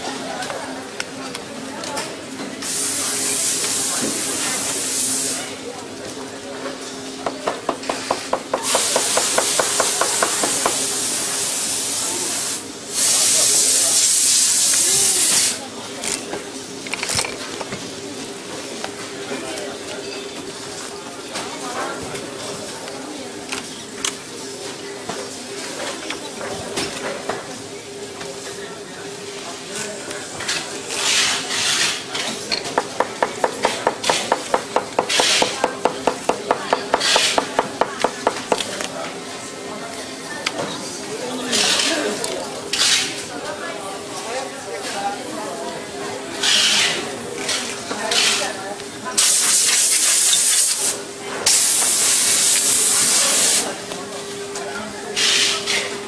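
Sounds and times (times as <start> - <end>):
loud steady hiss: 8.6 - 15.6, 49.2 - 53.7.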